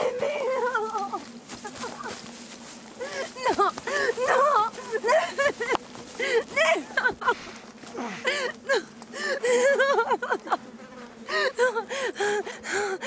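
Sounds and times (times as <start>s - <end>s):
woman sobbing and whimpering: 0.0s - 1.2s, 3.0s - 7.4s, 8.0s - 10.5s, 11.3s - 13.0s
gasping breaths: 3.9s - 4.2s, 6.2s - 9.7s, 11.3s - 13.0s.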